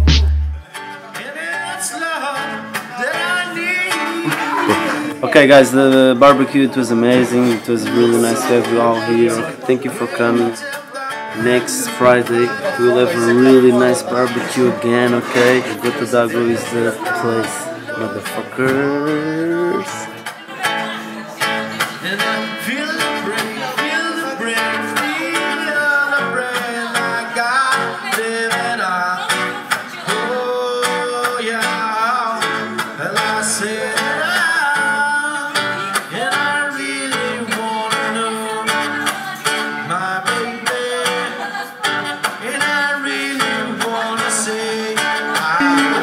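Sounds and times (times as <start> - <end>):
acoustic guitar strumming: 0.0 - 46.0
person singing: 10.0 - 20.2, 22.0 - 41.6, 42.4 - 46.0.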